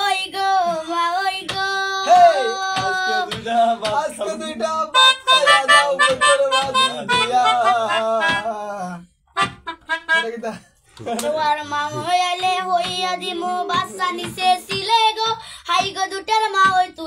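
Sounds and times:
sharp taps keeping time: 0:02.8 - 0:08.5, 0:09.4 - 0:10.1, 0:12.0 - 0:17.0
melodica tune: 0:04.8 - 0:08.7, 0:09.4 - 0:10.6.

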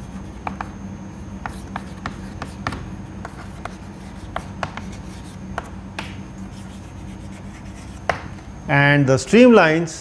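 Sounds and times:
chalk tapping and scraping: 0:00.0 - 0:00.8, 0:01.4 - 0:08.4
steady low hum: 0:00.0 - 0:10.0.

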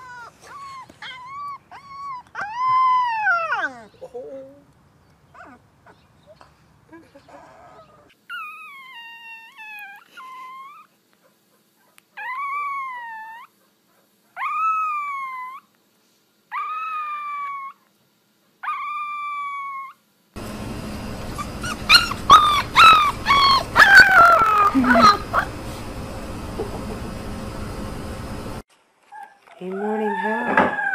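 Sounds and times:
puppy crying: 0:00.0 - 0:04.0, 0:05.4 - 0:06.0, 0:07.2 - 0:11.0, 0:11.8 - 0:13.6, 0:14.4 - 0:15.7, 0:16.5 - 0:17.8, 0:18.6 - 0:20.0, 0:21.2 - 0:25.8
puppy howling: 0:00.0 - 0:04.0, 0:12.2 - 0:13.5, 0:14.4 - 0:15.7, 0:16.5 - 0:17.8, 0:18.6 - 0:20.0, 0:21.1 - 0:25.9, 0:29.2 - 0:30.9
background noise: 0:00.0 - 0:20.4, 0:28.6 - 0:30.9.

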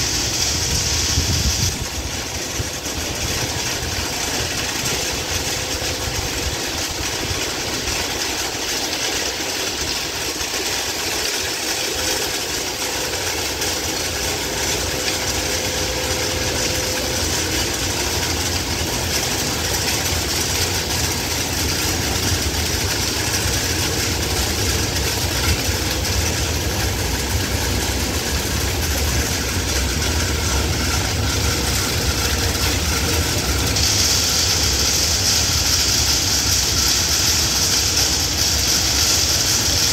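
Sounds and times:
continuous rushing hiss: 0:00.0 - 0:39.9
diesel engine rumble: 0:00.0 - 0:39.9.

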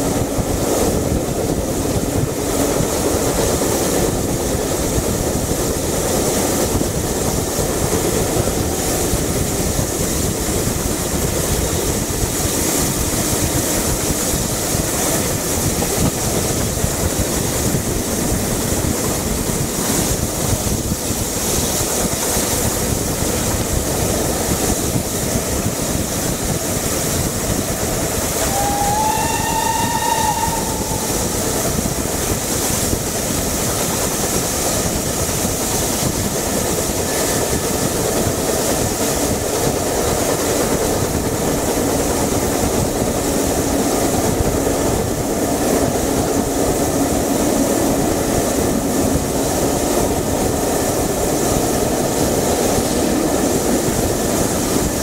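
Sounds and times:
train wheel and running noise: 0:00.0 - 0:55.0
steam whistle: 0:28.3 - 0:32.0.

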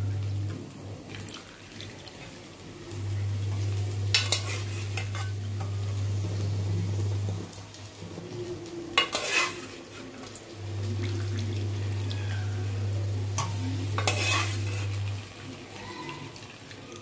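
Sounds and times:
low steady hum: 0:00.0 - 0:01.1, 0:02.2 - 0:15.6
metal spoon scraping pots: 0:04.1 - 0:05.4, 0:09.0 - 0:09.8, 0:13.4 - 0:14.9.

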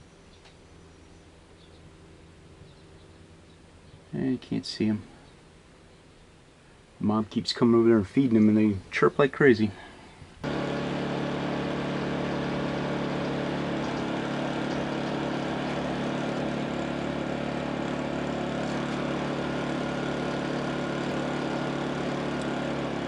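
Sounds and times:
generator engine running: 0:10.4 - 0:23.0.

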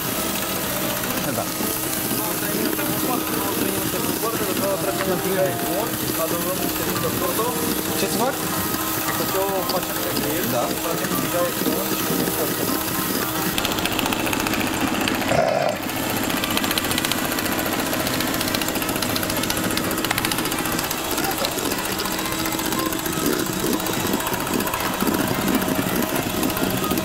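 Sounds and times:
small electric motor buzzing: 0:00.0 - 0:27.0.

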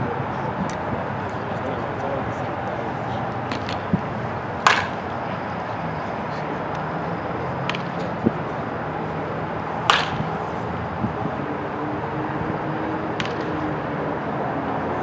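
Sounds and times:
outdoor background noise: 0:00.0 - 0:15.0
baseball bat cracking ball: 0:02.9 - 0:05.4, 0:07.6 - 0:11.3, 0:13.0 - 0:13.7.

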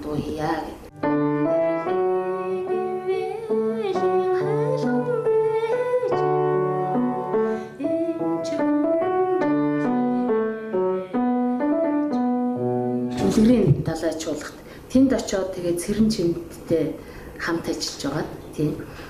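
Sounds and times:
slow piano melody: 0:00.9 - 0:13.9.

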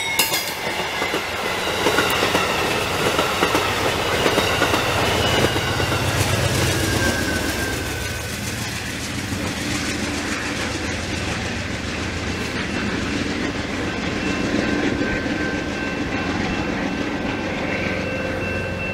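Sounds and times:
train wheels rumbling on rails: 0:00.0 - 0:18.9
faint high ringing tone: 0:04.0 - 0:08.2, 0:17.4 - 0:18.9.

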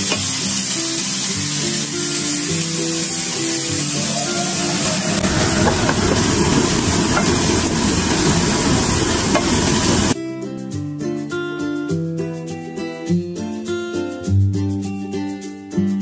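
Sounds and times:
plucked-string background music: 0:00.0 - 0:07.4, 0:10.2 - 0:16.0
onions sizzling in a frying pan: 0:00.0 - 0:10.2
range hood fan rushing: 0:03.2 - 0:10.2.

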